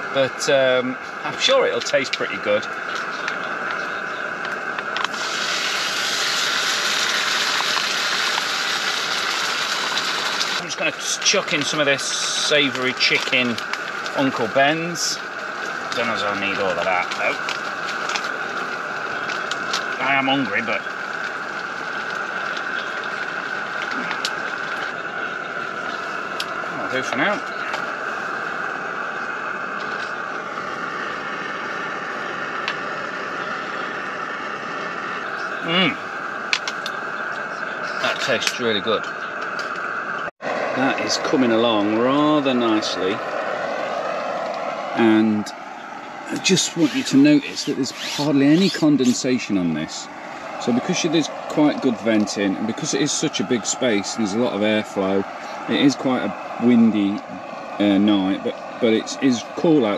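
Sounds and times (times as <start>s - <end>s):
steady rushing hiss: 0.0s - 59.9s
food sizzling in a frying pan: 5.1s - 10.6s.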